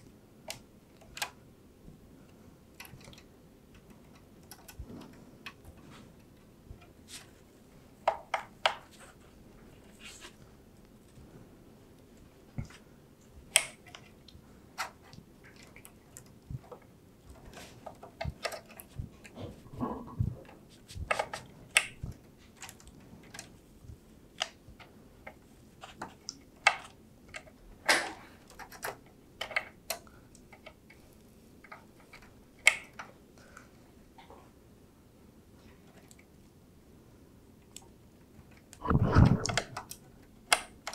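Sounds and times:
plastic connectors clicking: 0:13.4 - 0:16.8.

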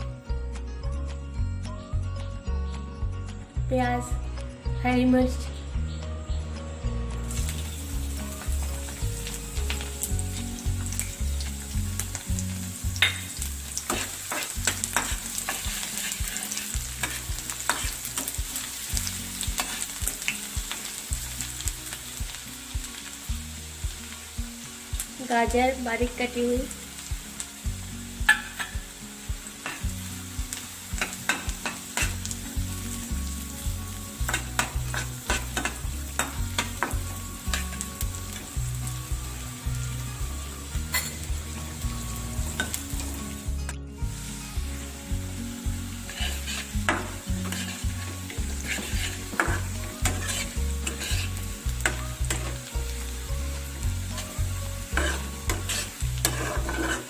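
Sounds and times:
vegetables sizzling in oil: 0:01.4 - 0:57.0
metal spatula scraping pan: 0:13.0 - 0:18.7, 0:46.0 - 0:52.6, 0:54.9 - 0:57.0.

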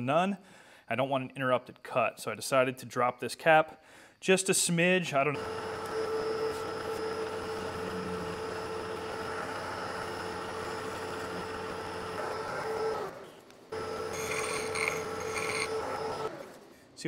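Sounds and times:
milling machine cutting metal: 0:05.4 - 0:13.2, 0:13.8 - 0:16.4.

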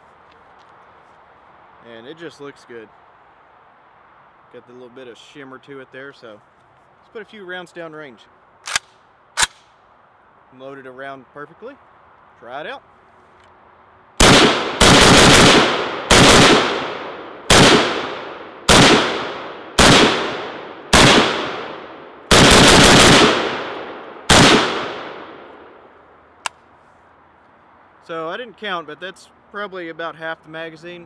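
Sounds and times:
rifle shots echoing: 0:14.2 - 0:25.7.

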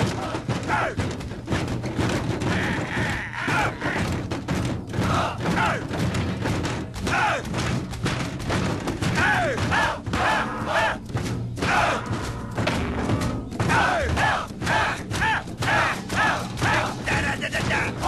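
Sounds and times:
fists pounding on wooden shields: 0:00.0 - 0:12.0, 0:12.6 - 0:18.0
men shouting and whooping: 0:02.4 - 0:04.1, 0:13.7 - 0:18.0.

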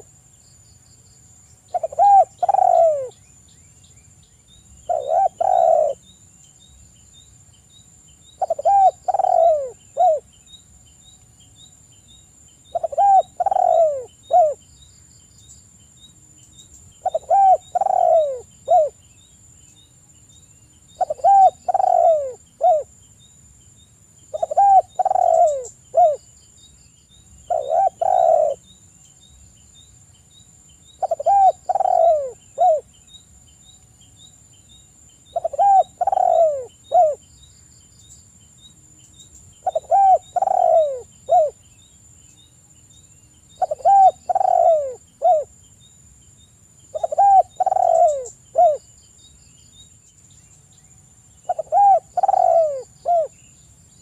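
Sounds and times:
dove cooing: 0:01.7 - 0:03.2, 0:04.9 - 0:06.0, 0:08.4 - 0:10.2, 0:12.7 - 0:14.6, 0:17.0 - 0:19.0, 0:21.0 - 0:22.9, 0:24.3 - 0:26.2, 0:27.5 - 0:28.6, 0:31.0 - 0:32.9, 0:35.3 - 0:37.2, 0:39.6 - 0:41.6, 0:43.6 - 0:45.5, 0:46.9 - 0:48.8, 0:51.4 - 0:53.4.

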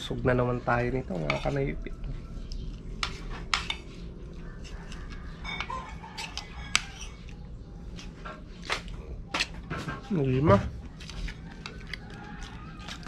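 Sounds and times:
cutlery clinking on plates: 0:05.3 - 0:07.2.

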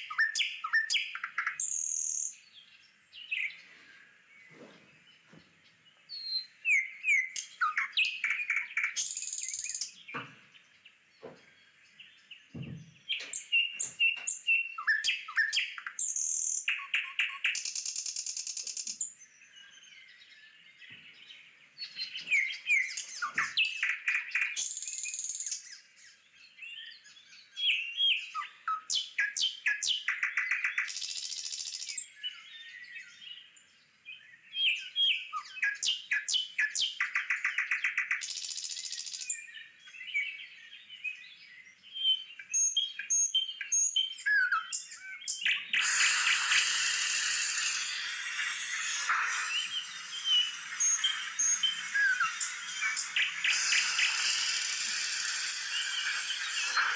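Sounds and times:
birds chirping and trilling: 0:00.0 - 0:56.9
harsh hissing calls: 0:07.4 - 0:09.9, 0:13.2 - 0:19.1, 0:21.9 - 0:25.6, 0:45.3 - 0:56.9.

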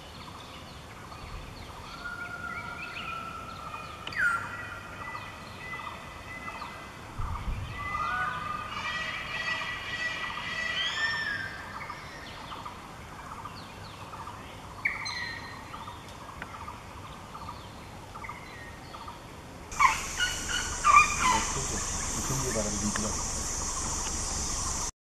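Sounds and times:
birds calling: 0:01.1 - 0:24.9
steady high hiss: 0:15.6 - 0:24.9.

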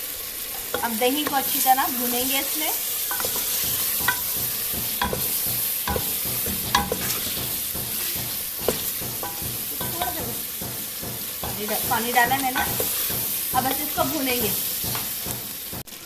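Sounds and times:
food sizzling in a metal pot: 0:00.0 - 0:16.0
spoon stirring and scraping pot: 0:02.8 - 0:15.9
spoon knocking against pot: 0:03.1 - 0:15.9.

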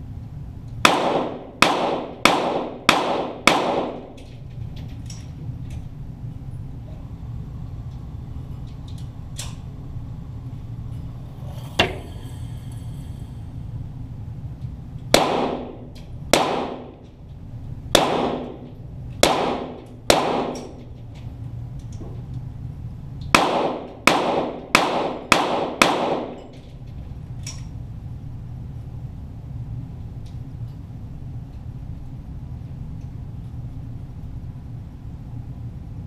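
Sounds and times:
steady low hum: 0:00.0 - 0:36.0
pistol shots with echo: 0:00.8 - 0:04.1, 0:15.1 - 0:17.0, 0:17.9 - 0:20.8, 0:23.3 - 0:26.4.

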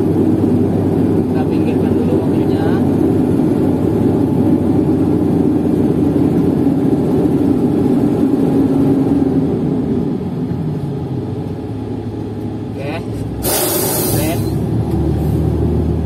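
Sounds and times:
diesel crane engine droning: 0:00.0 - 0:16.0.

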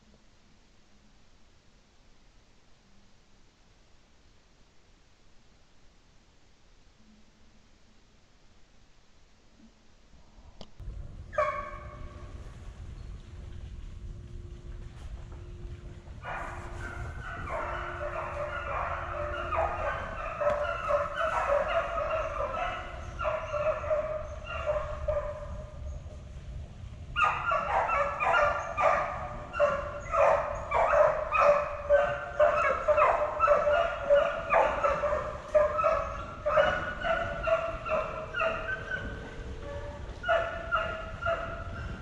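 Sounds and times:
hounds baying: 0:11.3 - 0:12.2, 0:16.2 - 0:25.6, 0:27.2 - 0:42.0.

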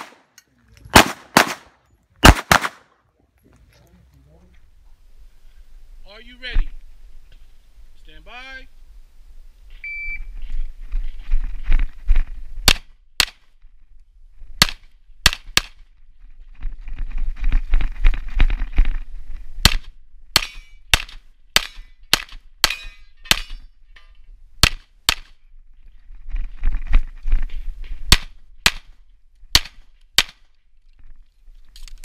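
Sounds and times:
pistol shots: 0:00.9 - 0:02.9.

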